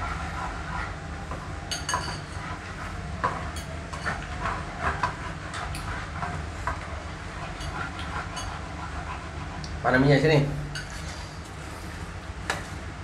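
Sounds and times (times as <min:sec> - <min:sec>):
spoon clinking against bowl: 0:01.7 - 0:02.3
spatula scraping frying pan: 0:01.7 - 0:09.6.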